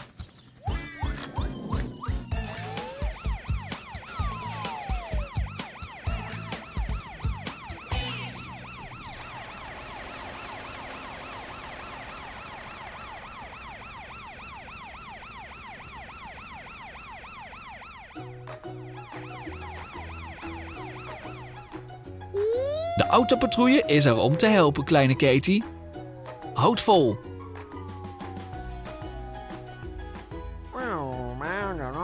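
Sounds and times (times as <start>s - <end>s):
background music with a beat: 0.0s - 8.6s
cartoon siren warbling: 0.8s - 12.6s, 22.3s - 27.2s.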